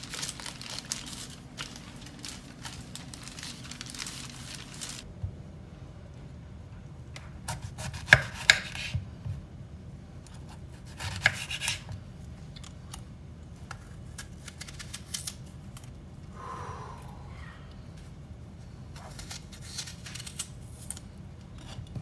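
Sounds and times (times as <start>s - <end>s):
knife cutting through apple: 10.4s - 11.9s, 19.0s - 21.0s.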